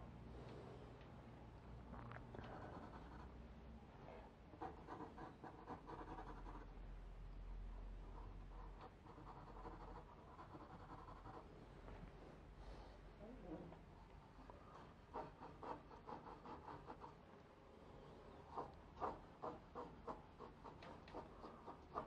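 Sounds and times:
pencil scratching on paper: 0:02.4 - 0:03.4, 0:04.5 - 0:06.7, 0:08.1 - 0:11.6, 0:14.7 - 0:17.2, 0:18.4 - 0:22.0.

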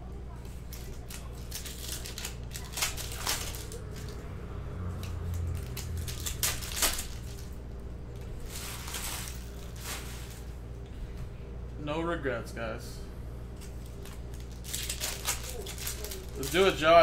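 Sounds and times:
low electrical hum: 0:00.0 - 0:17.0
wrappers crinkling and tearing: 0:00.6 - 0:10.6, 0:13.6 - 0:17.0.

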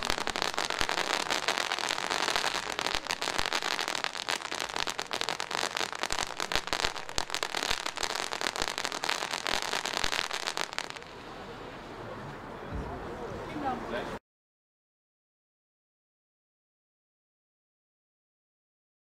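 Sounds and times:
rapid crackles: 0:00.0 - 0:11.0
firework fountain hissing: 0:00.0 - 0:11.8.

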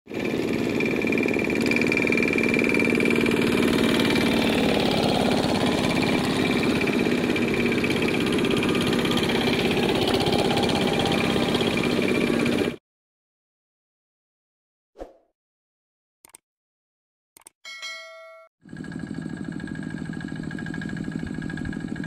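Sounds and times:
diesel hand tractors chugging: 0:00.1 - 0:12.8, 0:18.7 - 0:22.0.

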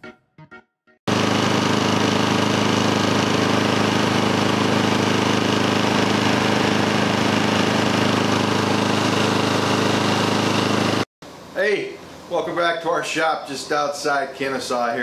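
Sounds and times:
lawn mower engine running: 0:01.1 - 0:11.1.

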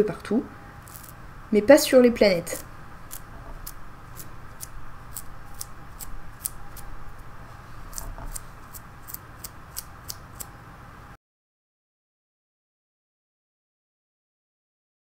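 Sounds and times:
paintbrush bristles flicking: 0:00.8 - 0:01.2.

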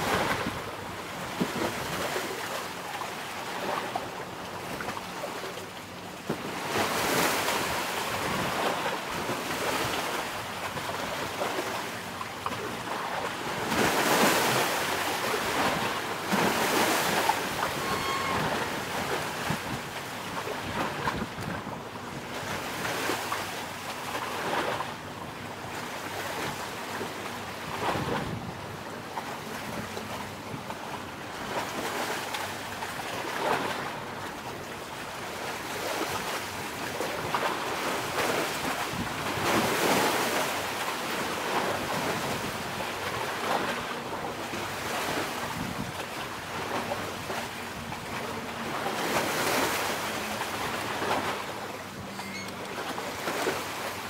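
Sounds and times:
sea waves washing ashore: 0:00.0 - 0:54.0
wind buffeting microphone: 0:27.7 - 0:28.9, 0:45.4 - 0:46.7.

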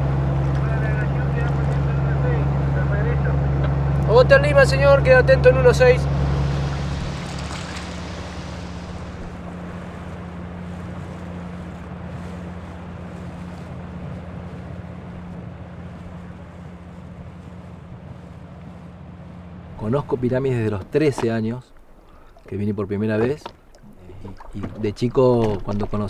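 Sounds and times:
outboard motor droning: 0:00.0 - 0:26.0
wind: 0:00.0 - 0:26.0
water hissing: 0:04.6 - 0:11.6.

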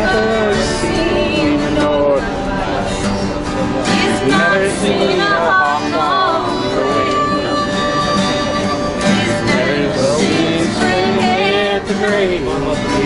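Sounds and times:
acoustic guitar strumming: 0:00.0 - 0:13.0
man singing country song: 0:00.0 - 0:13.0.

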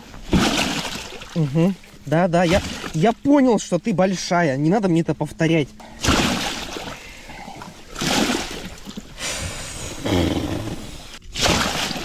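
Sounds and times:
fish thrashing and splashing: 0:00.2 - 0:03.0, 0:05.9 - 0:09.2, 0:11.2 - 0:12.0.

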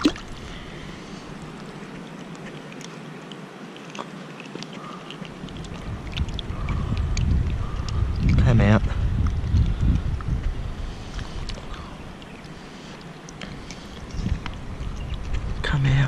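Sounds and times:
creek water running over stones: 0:00.0 - 0:16.0
wind buffeting microphone: 0:04.8 - 0:16.0.

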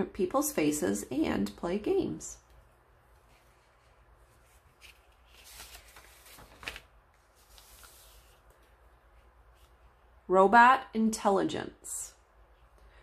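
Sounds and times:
page turning rustle: 0:03.1 - 0:08.8.

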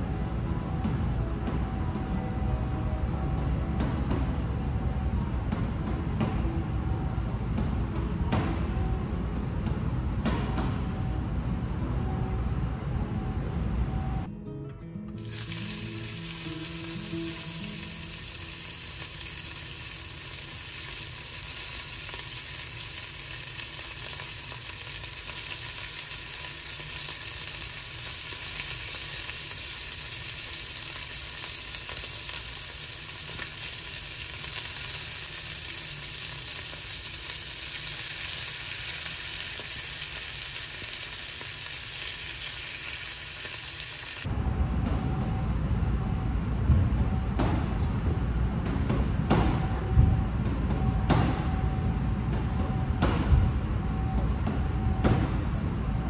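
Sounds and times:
meat sizzling in a frying pan: 0:15.2 - 0:44.3.

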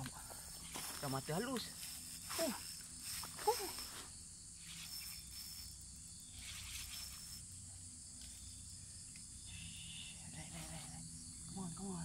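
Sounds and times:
insect chorus: 0:00.0 - 0:12.0
fishing reel spinning: 0:01.7 - 0:04.0, 0:04.6 - 0:08.6.

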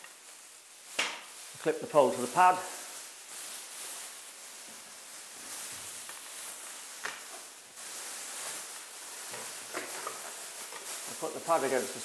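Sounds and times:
plastic sheeting rustling: 0:00.0 - 0:12.0.

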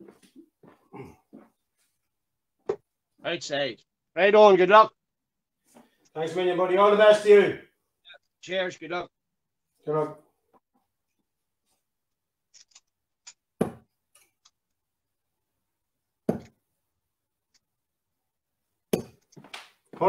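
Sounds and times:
darts striking dartboard: 0:16.3 - 0:16.6.

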